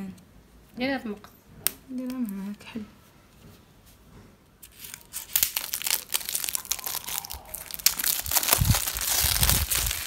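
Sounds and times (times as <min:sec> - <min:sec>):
cellophane wrap crinkling: 0:04.6 - 0:10.0.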